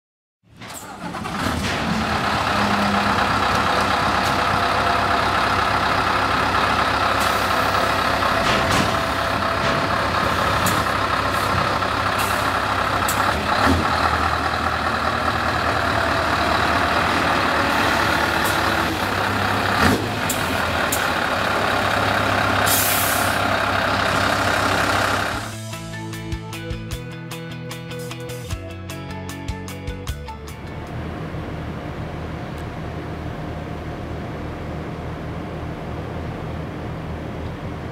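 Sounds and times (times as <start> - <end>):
truck engine idling: 0.6 - 27.4.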